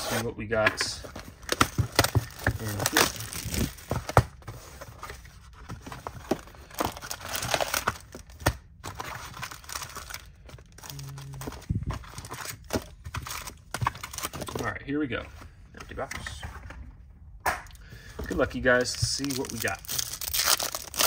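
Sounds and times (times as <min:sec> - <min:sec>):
foil packs rustling: 0:00.0 - 0:14.7, 0:18.2 - 0:21.0
plastic wrap tearing and crumpling: 0:01.5 - 0:03.8, 0:06.7 - 0:08.4, 0:19.1 - 0:21.0.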